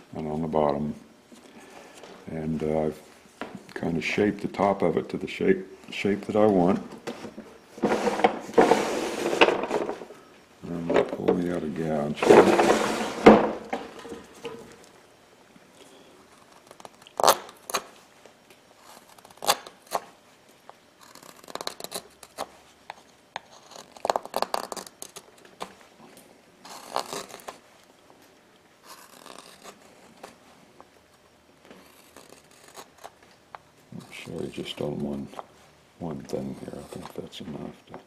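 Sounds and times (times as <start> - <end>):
gouge cutting wood: 31.8 - 33.1.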